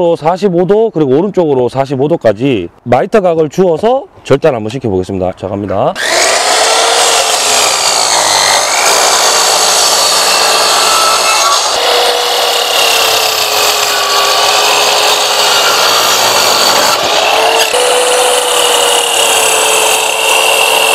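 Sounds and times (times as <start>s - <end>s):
miter saw cutting wood: 6.0s - 20.9s.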